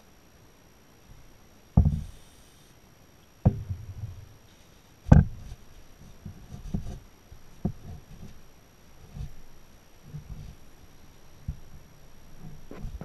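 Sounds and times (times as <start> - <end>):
dull knocks on wooden workbench: 1.8 - 2.2, 3.4 - 4.2, 5.1 - 5.5
aerosol spray hiss: 1.9 - 2.8.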